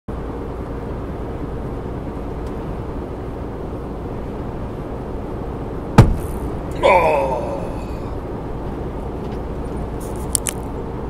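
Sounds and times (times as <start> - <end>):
road noise: 0.1 - 11.0
lorry engine drone: 0.2 - 11.0.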